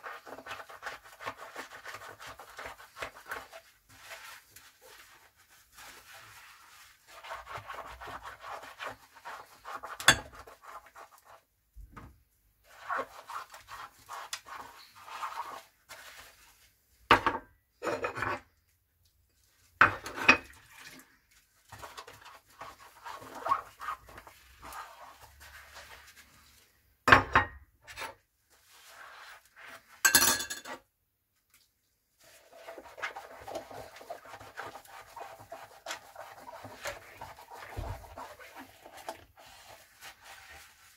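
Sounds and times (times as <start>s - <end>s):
sponge scrubbing dishes: 0.0s - 11.5s, 12.6s - 17.1s, 19.4s - 26.9s, 27.8s - 30.1s, 32.1s - 40.9s
dishes clinking: 30.1s - 30.8s.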